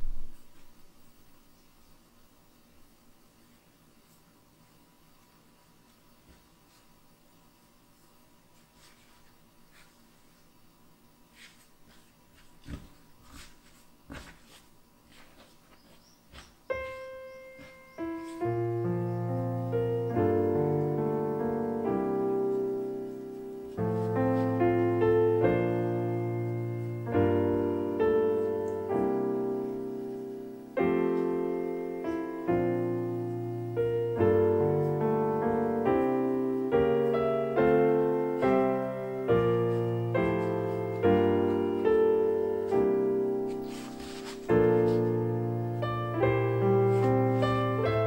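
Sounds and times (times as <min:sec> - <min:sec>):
soft rustle: 0:02.8 - 0:19.9, 0:22.3 - 0:48.0
gentle solo piano music: 0:16.7 - 0:48.0.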